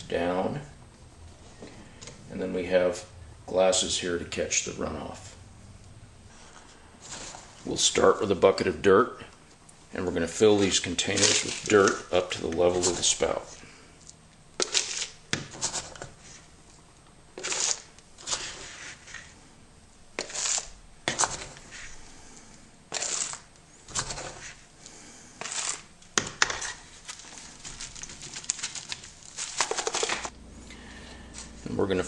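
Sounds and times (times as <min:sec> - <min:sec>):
soil scraping and pouring: 0:06.3 - 0:08.0, 0:10.3 - 0:13.6, 0:17.4 - 0:19.4, 0:20.2 - 0:22.0, 0:22.9 - 0:24.6, 0:25.4 - 0:25.9.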